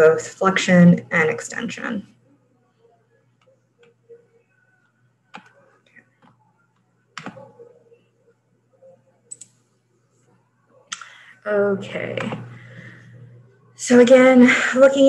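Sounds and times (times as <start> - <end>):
faint low hum: 0.0 - 15.0
computer clicks: 9.3 - 9.6.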